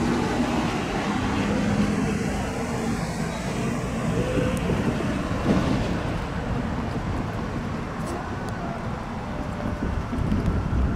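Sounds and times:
road traffic: 0:00.0 - 0:10.9
wind on microphone: 0:03.7 - 0:10.9.

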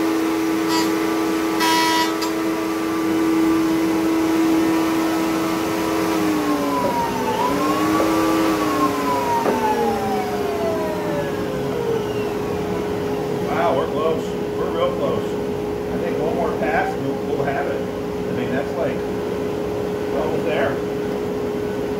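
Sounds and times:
machine hum: 0:00.0 - 0:21.9
router spinning down whine: 0:00.4 - 0:13.7.

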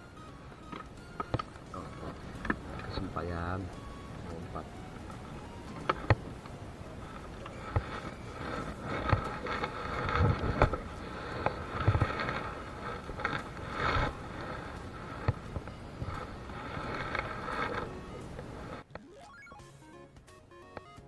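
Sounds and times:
steady background drone: 0:00.0 - 0:19.0.

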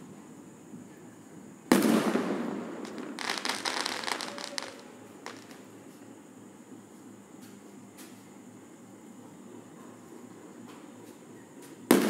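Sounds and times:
firework bang: 0:01.7 - 0:05.6
crackling firework pops: 0:01.7 - 0:05.7, 0:11.6 - 0:12.0.

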